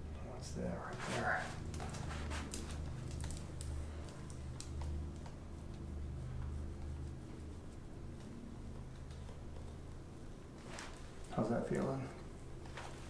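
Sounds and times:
steady low hum: 0.0 - 13.0
light irregular clicks: 2.5 - 5.8.

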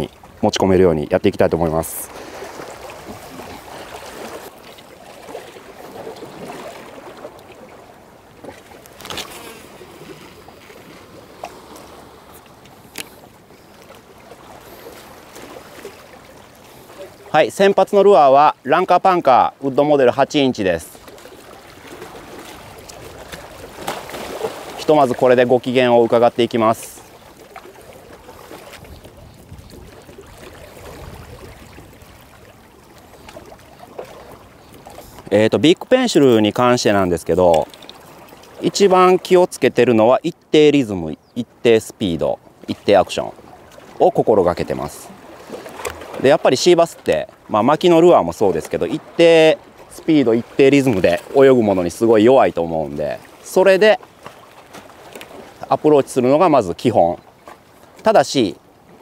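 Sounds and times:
water lapping at shoreline: 0.0 - 59.0
faint clicks: 11.8 - 13.2.

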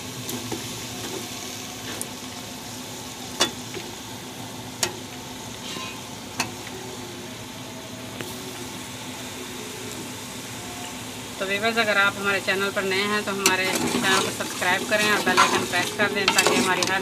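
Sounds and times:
sauce sizzling in metal pot: 0.0 - 17.0.

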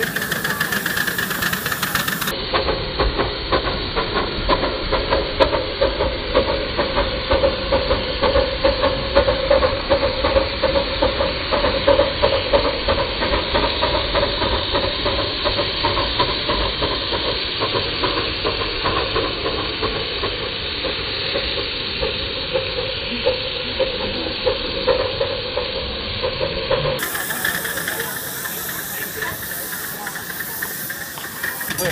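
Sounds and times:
steam locomotive hissing and chuffing: 0.0 - 31.9.

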